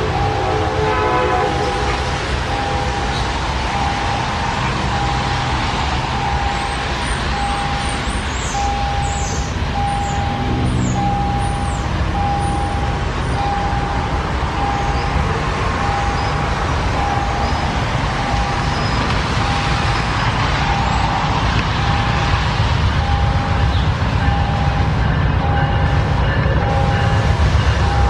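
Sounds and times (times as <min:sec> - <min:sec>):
diesel locomotive engine running: 0:00.0 - 0:28.0
train rolling noise: 0:00.0 - 0:28.0
single-tone beep: 0:09.8 - 0:14.0.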